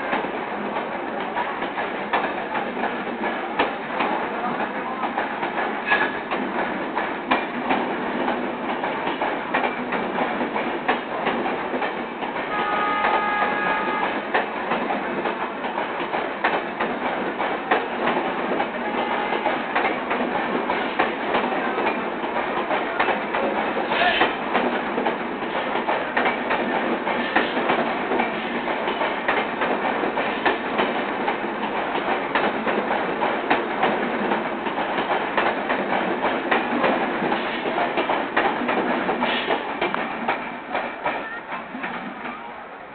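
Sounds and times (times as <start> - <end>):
train wheels clattering over joints: 0.0 - 42.3
train horn: 12.5 - 14.2, 18.9 - 19.6.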